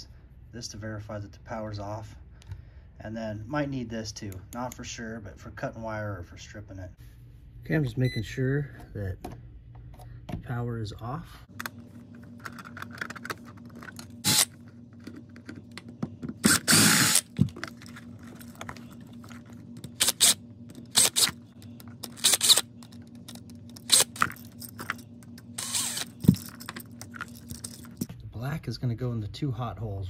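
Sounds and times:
cordless drill bursts: 0:14.2 - 0:14.5, 0:16.5 - 0:17.3, 0:20.0 - 0:21.3, 0:22.2 - 0:22.7, 0:25.6 - 0:26.2.

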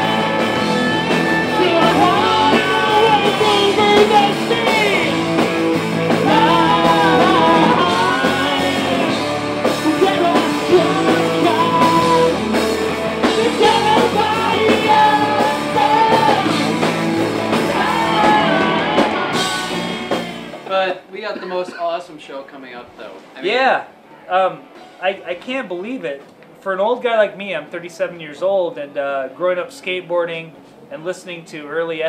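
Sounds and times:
man singing loudly: 0:00.0 - 0:05.3, 0:06.2 - 0:09.2, 0:09.8 - 0:12.6, 0:13.2 - 0:20.1
electric guitar: 0:00.0 - 0:20.7
rock band playing: 0:00.0 - 0:20.9.

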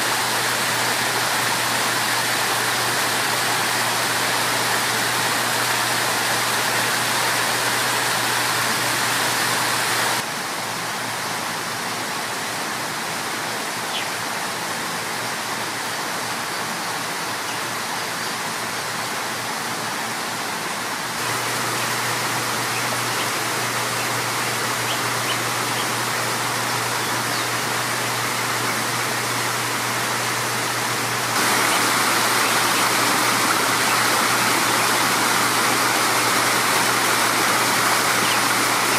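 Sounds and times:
water splashing down rocks: 0:27.6 - 0:38.9.

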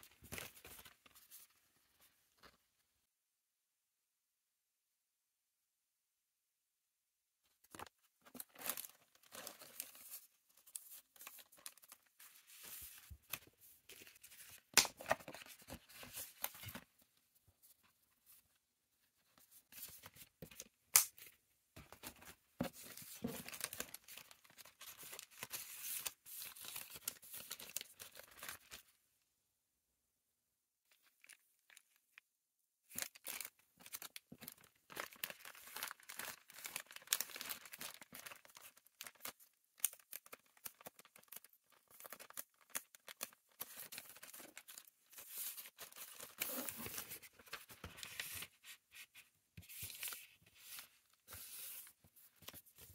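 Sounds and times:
plastic packaging crinkling: 0:32.9 - 0:47.8.

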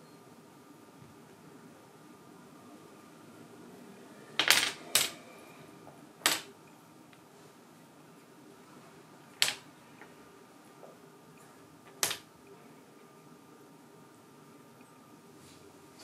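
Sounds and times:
dominoes clattering on wooden floor: 0:04.4 - 0:05.2.

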